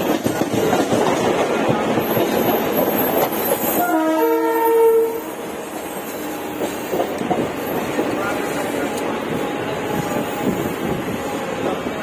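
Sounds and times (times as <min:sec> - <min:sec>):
train running on tracks: 0:00.0 - 0:12.0
train horn chord: 0:03.8 - 0:05.4.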